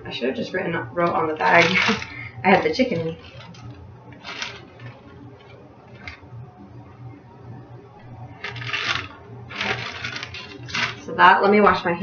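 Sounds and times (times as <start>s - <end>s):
plastic freezer bag rustling: 1.4s - 6.2s, 8.4s - 11.1s.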